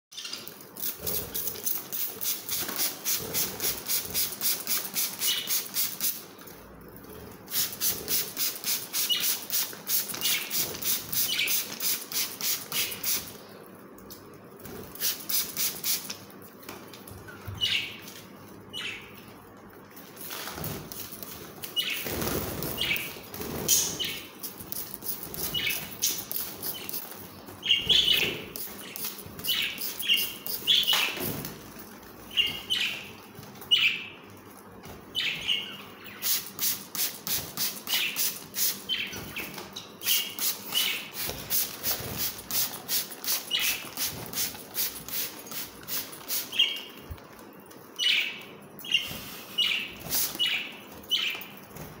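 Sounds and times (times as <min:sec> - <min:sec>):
spray bottle hissing: 0:15.0 - 0:16.1, 0:36.2 - 0:38.8, 0:40.1 - 0:46.6
wings fluttering: 0:20.1 - 0:33.7.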